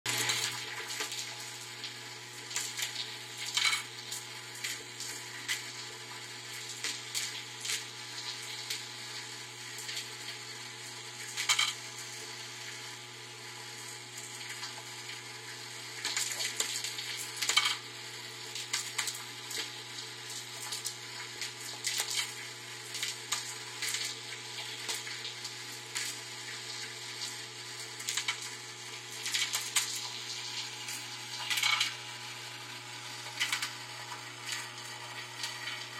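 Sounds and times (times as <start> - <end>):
feeder machine humming: 0.1 - 35.9
tiles rattling in vibrating bowl: 31.5 - 31.9.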